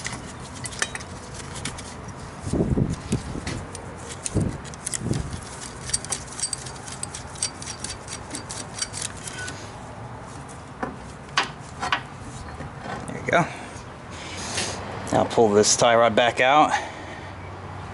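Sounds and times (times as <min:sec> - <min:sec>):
metal hook clinking: 0:04.7 - 0:09.5.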